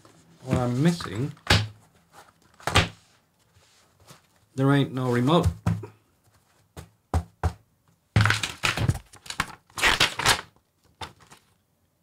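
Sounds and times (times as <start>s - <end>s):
paper rustling and crinkling: 0.0s - 5.5s, 8.2s - 11.6s.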